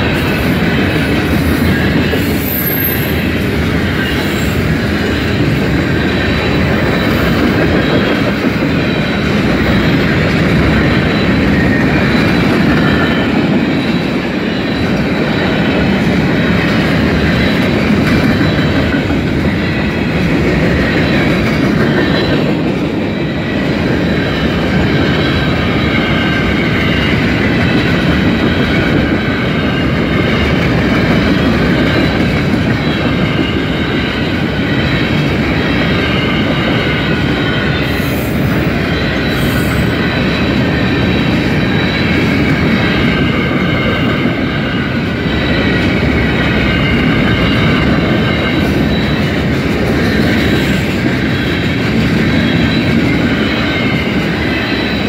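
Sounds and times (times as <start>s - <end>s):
train wheels rumbling on rail: 0.0s - 55.0s
high-pitched wheel squeal: 0.2s - 5.2s, 23.2s - 55.0s.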